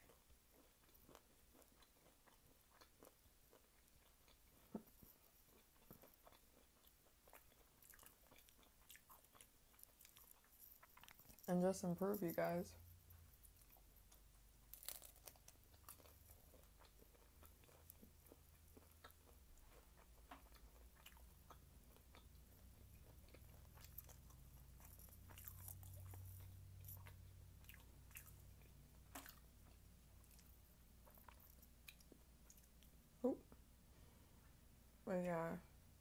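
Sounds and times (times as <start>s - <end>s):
chewing crispy food: 0.0s - 33.2s
low steady hum: 0.0s - 36.0s.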